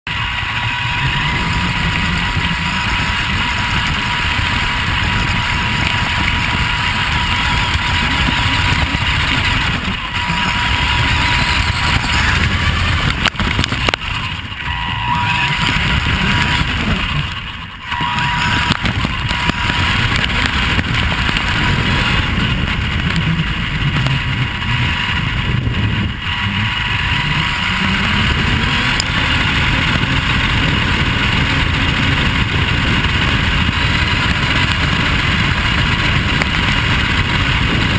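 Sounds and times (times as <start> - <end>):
wind: 0.0 - 37.9
rc car drivetrain and tyre noise: 0.1 - 37.9
thin steady high tone: 7.3 - 20.2.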